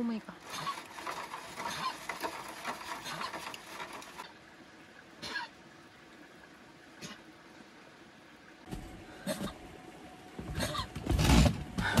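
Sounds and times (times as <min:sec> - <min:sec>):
stick scraping in foil pot: 0:00.4 - 0:04.2.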